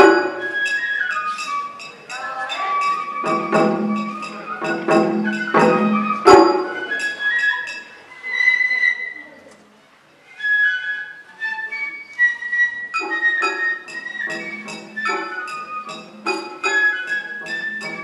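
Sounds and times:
taiko drum strikes: 0:00.0 - 0:00.7, 0:03.1 - 0:07.0, 0:14.3 - 0:18.0
bamboo flute melody: 0:00.0 - 0:18.0.

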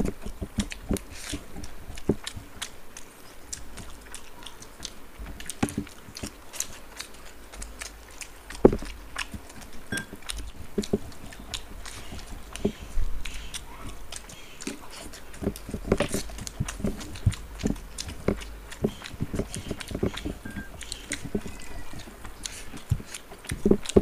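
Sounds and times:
fingers mixing rice on plates: 0:00.0 - 0:24.0
people chewing: 0:00.0 - 0:24.0.

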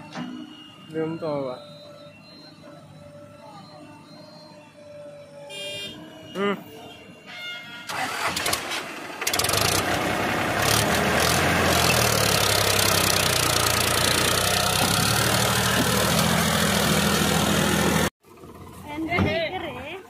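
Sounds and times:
tractor diesel engine running: 0:07.9 - 0:20.0.

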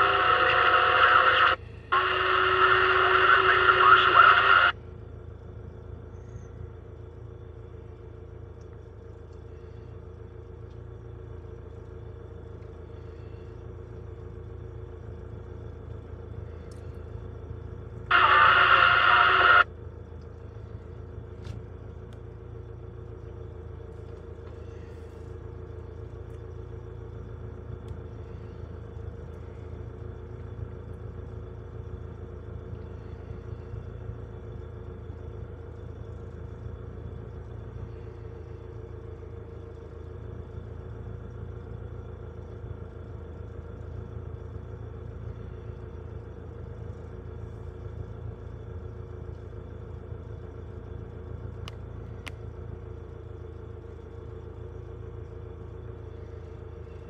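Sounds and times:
loud burst of noise: 0:00.0 - 0:04.8, 0:18.1 - 0:19.7
diesel equipment idling: 0:00.0 - 0:57.0.

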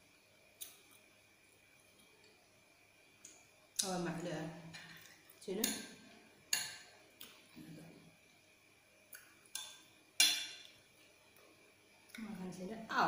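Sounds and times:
tableware clinking on a plate: 0:10.2 - 0:10.7.

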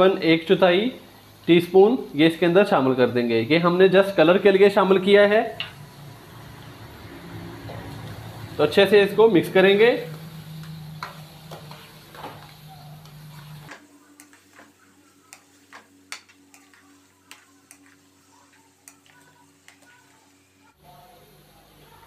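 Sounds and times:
low background hum: 0:00.0 - 0:22.0
spatula scraping a wok: 0:10.2 - 0:20.5.

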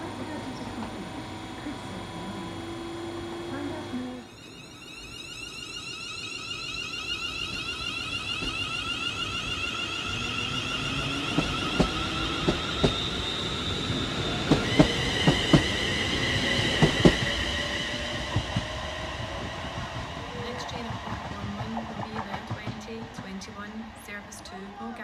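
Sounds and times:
electric train traction whine: 0:00.0 - 0:25.0
train wheels clicking over rail joints: 0:07.2 - 0:25.0.

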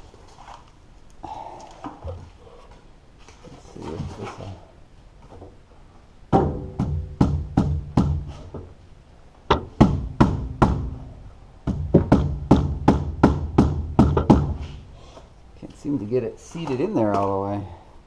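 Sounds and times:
rubber mallet knocking on canister: 0:11.7 - 0:14.6.

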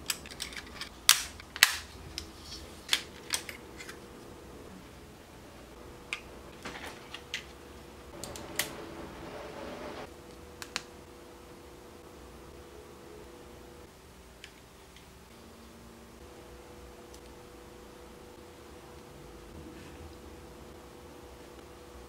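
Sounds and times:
plastic parts clicking and snapping: 0:00.0 - 0:02.3, 0:02.9 - 0:04.0.

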